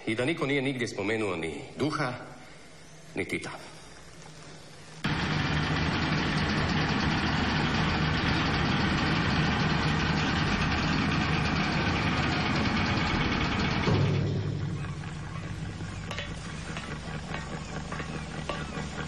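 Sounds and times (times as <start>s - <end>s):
ferry engines and ramp machinery: 4.9s - 19.0s
ramp landing jolt: 5.1s - 17.1s.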